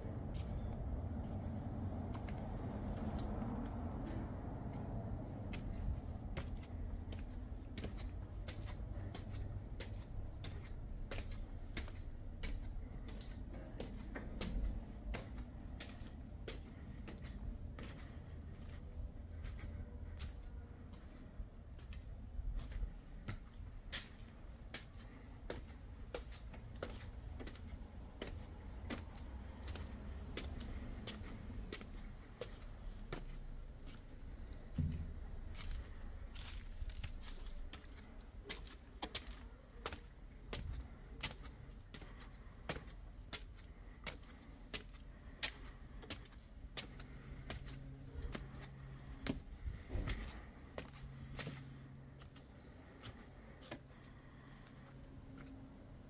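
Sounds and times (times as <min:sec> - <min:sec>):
footsteps on stone steps: 0:00.1 - 0:55.7.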